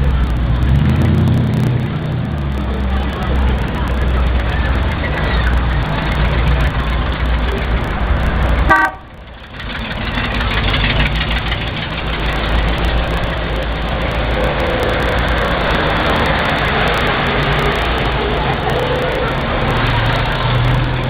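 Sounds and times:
cars driving slowly past: 0.0s - 21.0s
car horn toot: 8.6s - 9.2s.

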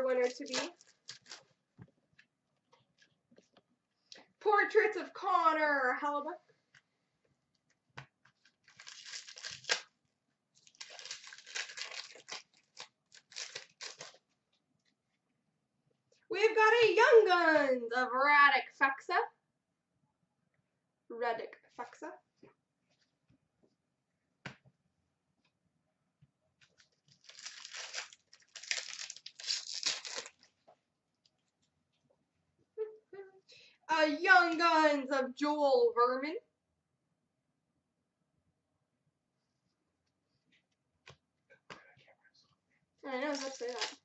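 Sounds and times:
foil wrapper tearing and crinkling: 0.0s - 1.5s, 8.4s - 9.9s, 10.6s - 14.2s, 26.7s - 30.6s, 43.2s - 44.0s.

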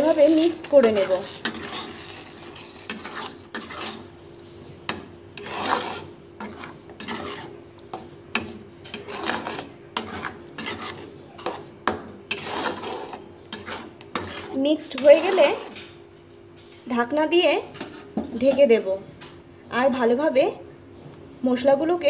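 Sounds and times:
metal spatula scraping a pan: 0.0s - 15.9s, 17.6s - 18.7s.

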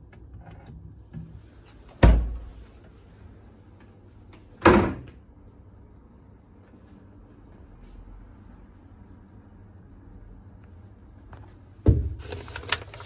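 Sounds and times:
fridge door shutting: 1.9s - 2.5s
cabinet door shutting: 2.0s - 2.4s, 4.6s - 5.1s.

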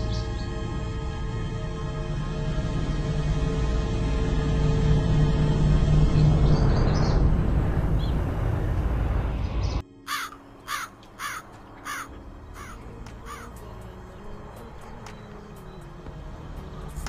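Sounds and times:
loud suspense music: 0.0s - 17.0s
crow cawing: 10.1s - 13.5s.

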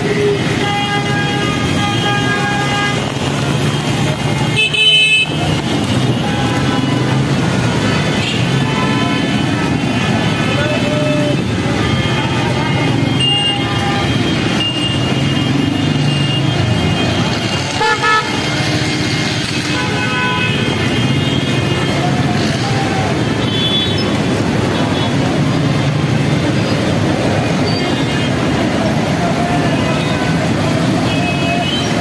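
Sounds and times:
vehicle horns honking: 0.0s - 22.6s
vehicle engines running: 0.0s - 32.0s
people's voices: 1.5s - 19.7s, 20.7s - 32.0s.

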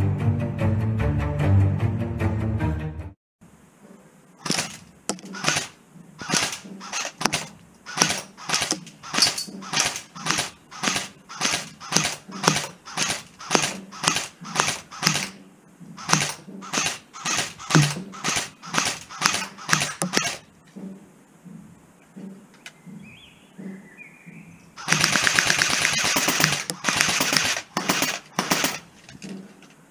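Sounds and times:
airsoft gun firing single shots: 4.4s - 15.4s, 16.0s - 20.4s, 24.8s - 28.8s.

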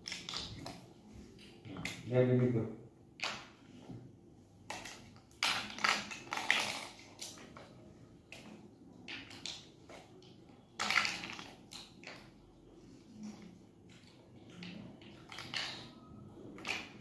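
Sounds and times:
plastic toy blocks clicking: 8.4s - 12.3s, 14.6s - 16.0s, 16.6s - 17.0s.

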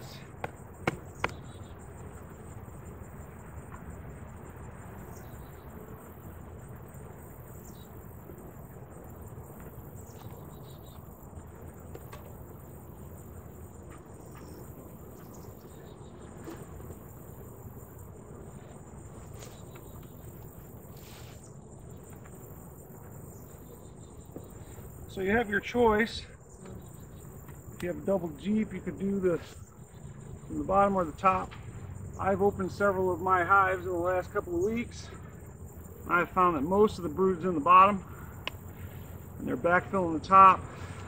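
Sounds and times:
crickets trilling: 0.0s - 41.0s
faint clicks: 38.4s - 38.8s.

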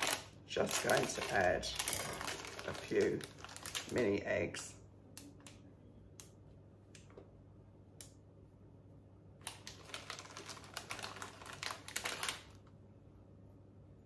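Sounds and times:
plastic bag crinkling: 0.0s - 4.4s, 9.4s - 12.7s.

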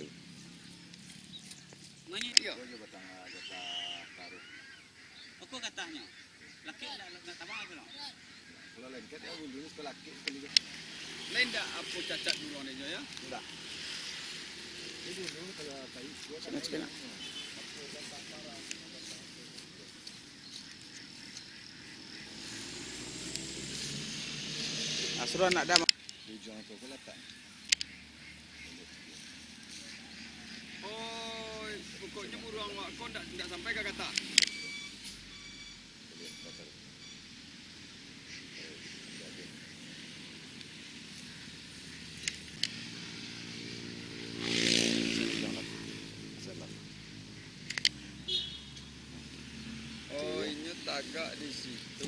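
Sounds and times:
high outdoor hiss: 0.0s - 52.0s
sharp clicks: 0.9s - 2.5s, 10.2s - 10.8s, 23.1s - 23.6s, 24.6s - 26.3s, 27.2s - 28.0s, 33.4s - 35.3s, 42.1s - 43.0s, 47.6s - 48.1s
small engine running: 22.0s - 25.8s, 42.0s - 46.8s
faint clicks: 47.7s - 48.0s.

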